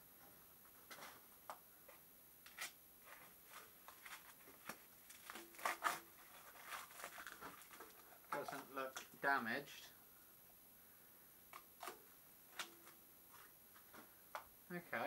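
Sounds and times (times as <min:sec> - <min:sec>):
foam packing sheet rustling: 0:02.5 - 0:09.1.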